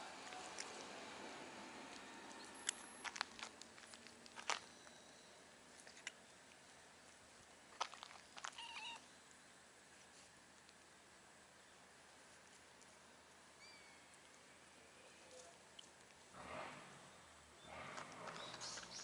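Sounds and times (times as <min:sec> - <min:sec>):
cat meowing: 0:08.5 - 0:09.0.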